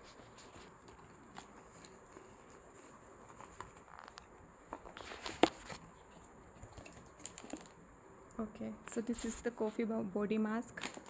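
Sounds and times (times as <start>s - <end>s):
cardboard scraping and rustling: 0.0s - 7.7s.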